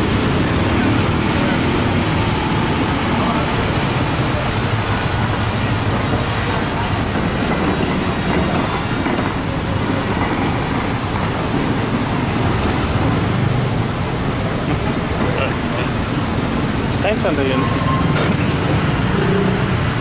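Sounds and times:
scooters and motorbikes passing: 17.7 - 20.0.

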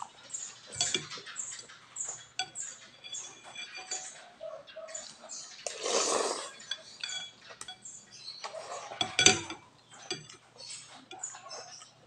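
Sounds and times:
cutlery clinking on glass bowl: 0.4 - 4.4, 5.0 - 7.9, 8.5 - 11.9
person slurping noodles: 5.7 - 6.5.

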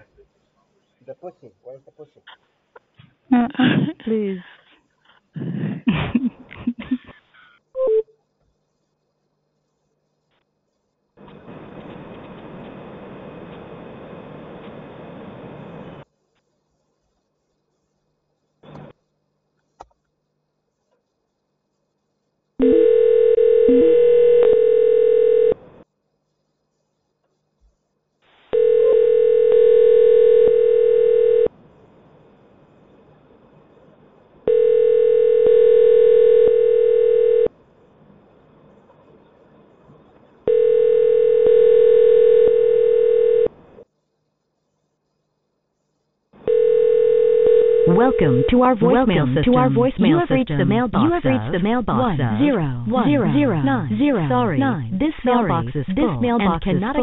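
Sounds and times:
telephone ringback tone: 7.8 - 8.0, 22.6 - 25.6, 28.6 - 31.5, 34.5 - 37.5, 40.5 - 43.5, 46.5 - 48.6.

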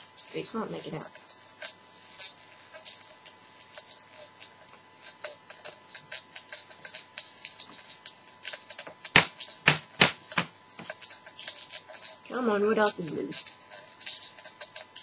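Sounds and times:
loudspeaker clicking and crackling: 0.0 - 15.0
loud sharp pops: 8.5 - 11.7.

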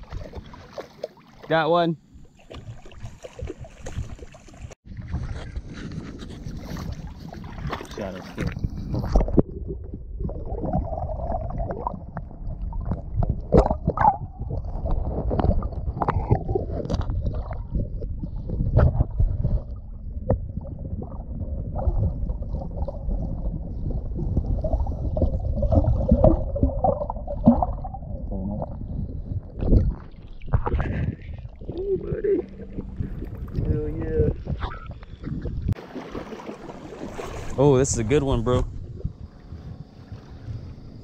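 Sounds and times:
water churning underwater: 0.0 - 41.0
sharp knocks underwater: 2.4 - 4.4, 11.7 - 22.9, 29.5 - 31.8, 34.3 - 37.6.

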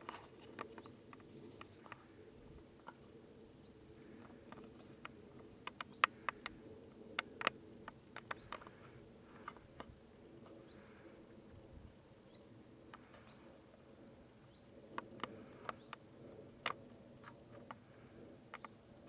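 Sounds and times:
faint steady hum: 0.0 - 19.0
sharp clicks and ticks: 4.2 - 9.9, 14.9 - 17.8.

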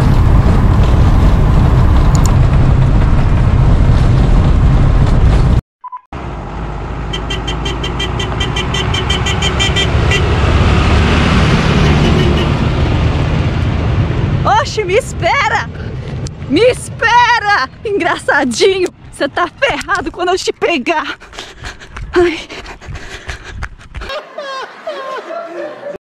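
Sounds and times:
vehicle engine and road rumble: 0.0 - 5.6, 6.2 - 24.1.

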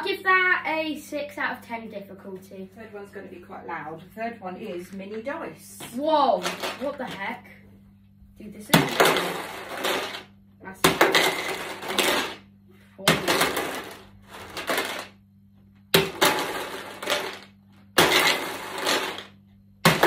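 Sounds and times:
dice rattling inside bottle: 8.9 - 10.3, 11.0 - 12.4, 13.2 - 15.2, 16.0 - 19.3.

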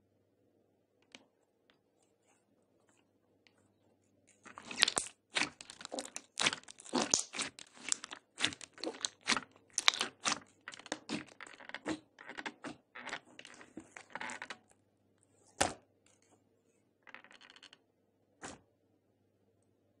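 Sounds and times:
slime squishing: 4.3 - 14.6.

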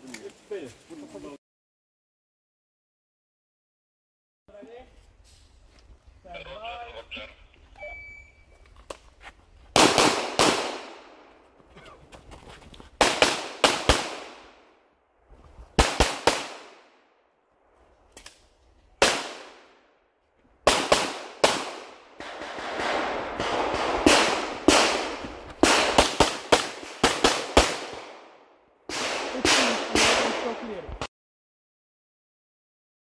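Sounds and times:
pistol shots echoing: 9.8 - 11.2, 13.0 - 14.6, 15.8 - 16.9, 20.7 - 30.8.

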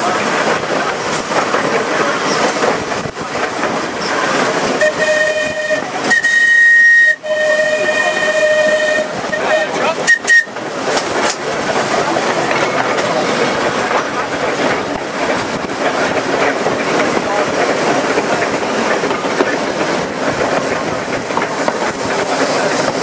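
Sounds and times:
tram rumbling on rails: 0.0 - 23.0
tram whistle blasts: 4.8 - 10.6.

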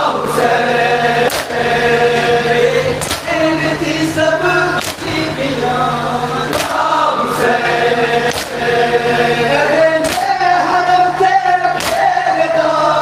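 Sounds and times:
men chanting in unison: 0.0 - 13.0
hands slapping chests: 4.8 - 5.0, 6.5 - 6.8, 8.3 - 8.6, 10.0 - 10.3, 11.8 - 12.1.

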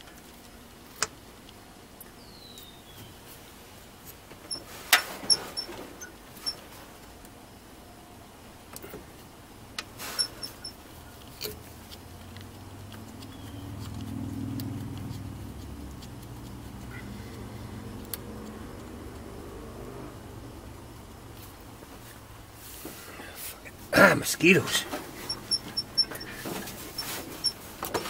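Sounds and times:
low vehicle hum: 0.0 - 28.0.

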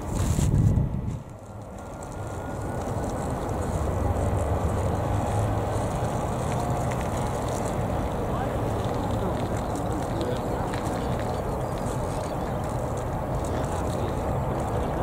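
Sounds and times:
jet engines rumbling: 0.0 - 15.0.

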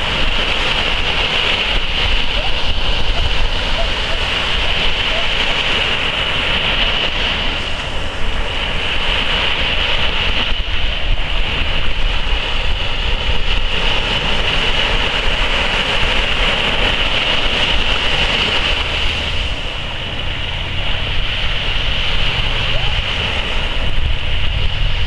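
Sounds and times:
small waves breaking on sand: 0.0 - 25.0.

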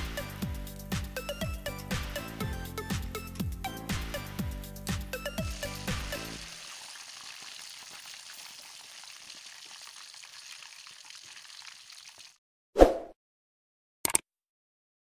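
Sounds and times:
background music: 0.0 - 6.8
chicken sizzling in hot oil: 5.2 - 12.4.

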